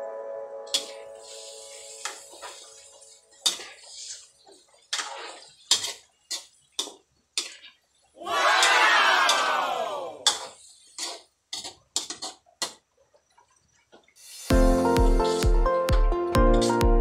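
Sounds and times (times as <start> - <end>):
music: 0.0 - 3.4, 14.4 - 17.0
metal utensil scraping a wok: 0.7 - 7.8, 10.2 - 12.8.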